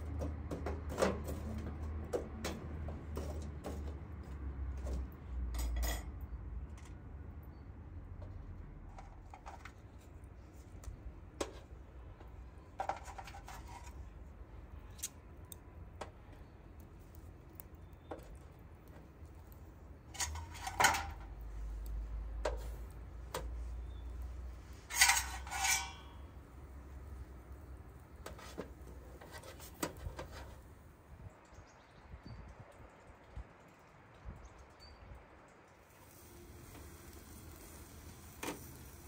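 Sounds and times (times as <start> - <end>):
steel skewers clinking on metal: 24.9 - 26.2.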